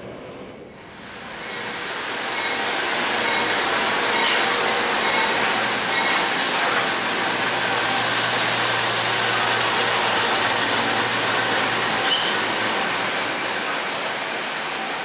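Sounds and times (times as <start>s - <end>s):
high squeal: 1.3s - 6.3s, 12.0s - 12.5s.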